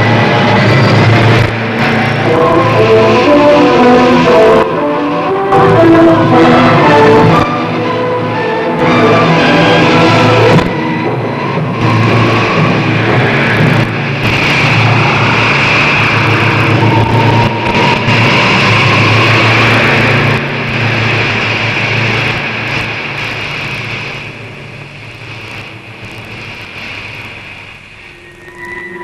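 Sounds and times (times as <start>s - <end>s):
rocket engine rushing: 0.0s - 29.0s.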